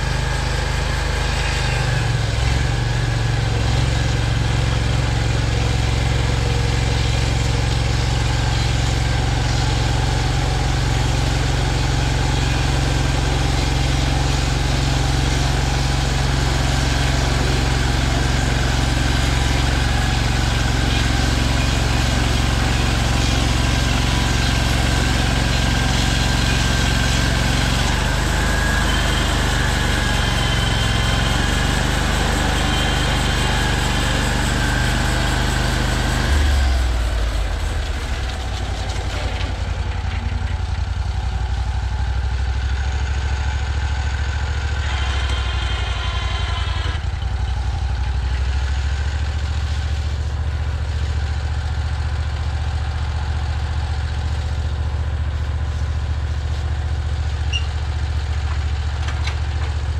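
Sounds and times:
band blade sawing through log: 0.0s - 39.3s
small engine running under load: 0.0s - 59.9s.

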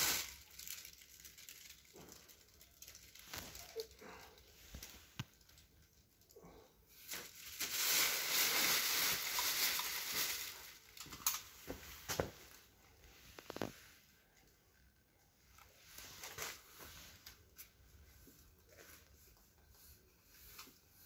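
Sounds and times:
plastic bag rustling: 0.0s - 5.8s, 7.0s - 13.8s.

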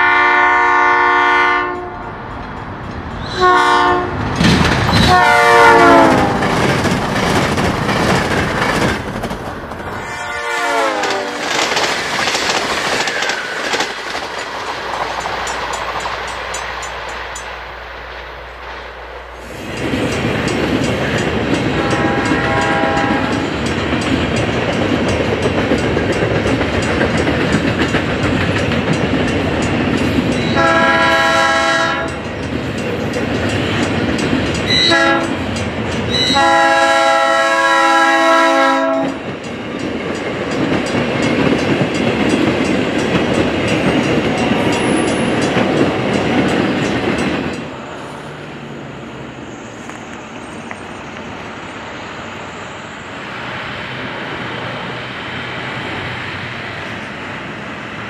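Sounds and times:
train horn blasts: 0.0s - 2.1s, 3.3s - 4.2s, 5.0s - 6.5s, 10.0s - 11.5s, 21.7s - 23.5s, 30.4s - 32.2s, 34.7s - 35.4s, 36.1s - 39.2s
train rumbling on rails: 0.0s - 58.0s.

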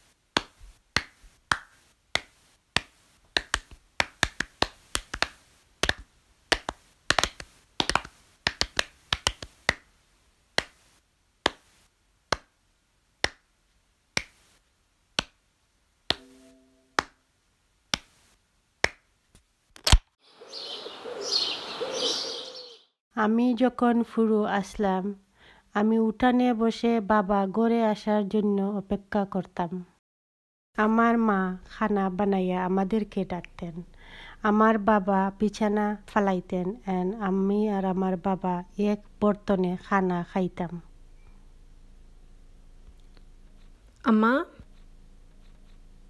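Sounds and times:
hands clapping: 0.4s - 9.9s, 10.6s - 10.8s, 11.4s - 11.6s, 12.3s - 12.5s, 13.2s - 13.5s, 14.2s - 14.4s, 15.2s - 15.4s, 16.1s - 17.2s, 18.8s - 19.0s
brief low tone: 16.2s - 17.0s.

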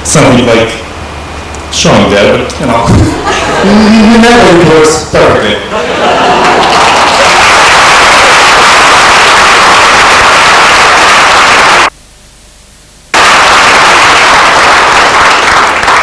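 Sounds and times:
loud distorted applause: 5.8s - 11.9s, 13.1s - 16.0s.

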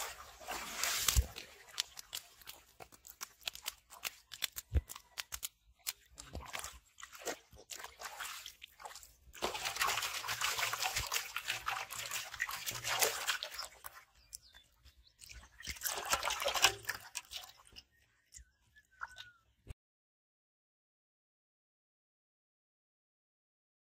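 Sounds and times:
fish splashing in metal basin: 0.0s - 14.4s, 15.2s - 17.8s.

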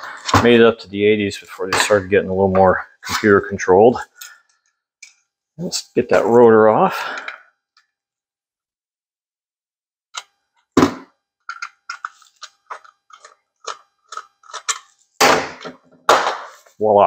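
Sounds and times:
screwdriver and metal parts clicking: 11.5s - 14.9s.

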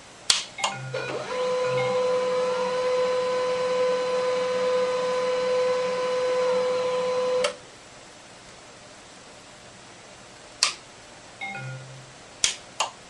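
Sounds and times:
printer motor whine: 0.7s - 7.6s.

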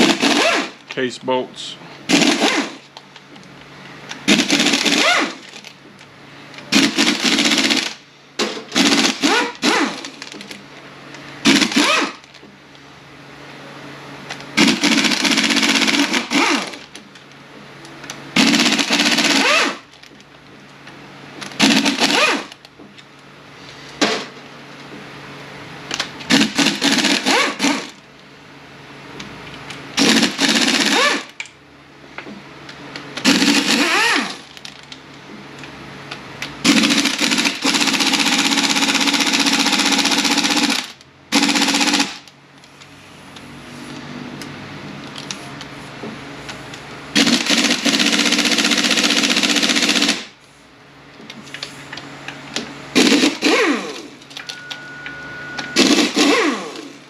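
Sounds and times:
impact wrench rattling: 21.4s - 22.7s, 33.2s - 35.0s.

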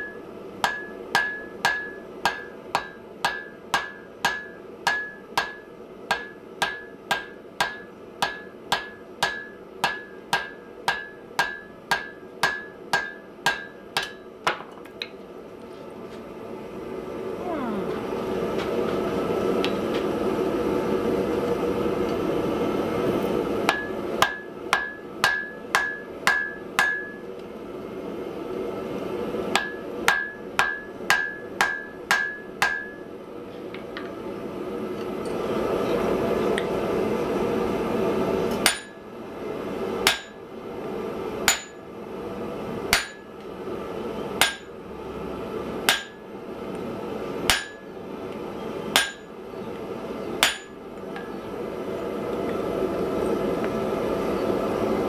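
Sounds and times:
hammer blows ringing on anvil: 0.0s - 14.3s, 23.7s - 27.2s, 29.6s - 33.0s, 38.6s - 39.0s, 40.0s - 40.4s, 41.5s - 41.8s, 42.9s - 43.3s, 44.4s - 44.7s, 45.9s - 46.2s, 47.5s - 47.9s, 48.9s - 49.3s, 50.4s - 50.8s.

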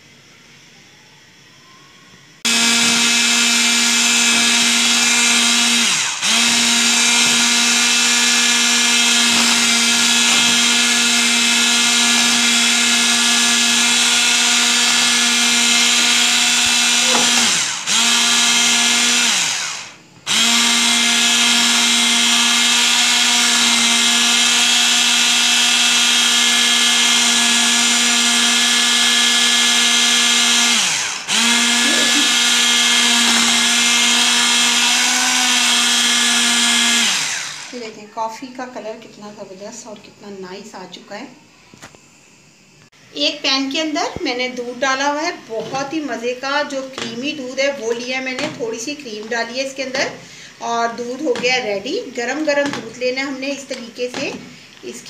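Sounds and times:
electric hand mixer whining: 2.4s - 38.0s.

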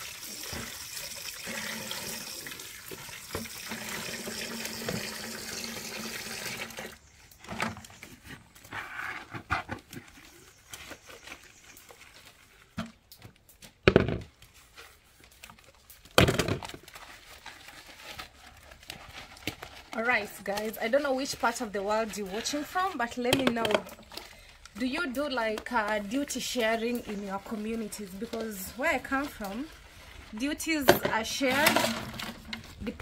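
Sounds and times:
water running from shower: 0.0s - 6.8s.

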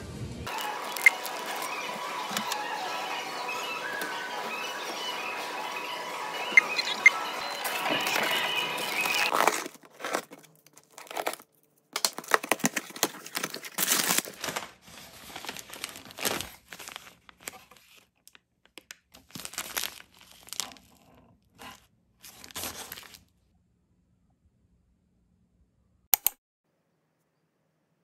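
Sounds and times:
crinkling and tearing: 7.6s - 23.3s.

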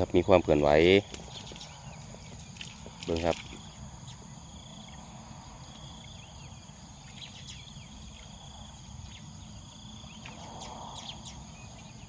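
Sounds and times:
crickets chorus: 0.0s - 12.0s.

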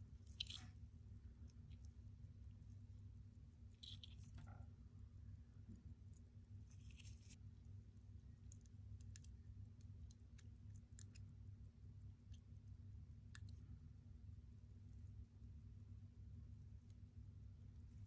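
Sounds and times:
small steel tools clicking: 0.0s - 0.8s, 1.4s - 13.7s
low steady hum: 0.0s - 18.0s.

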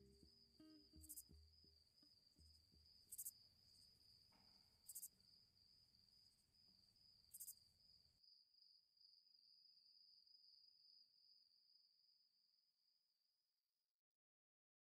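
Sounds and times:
faint low rumble: 0.0s - 3.1s.

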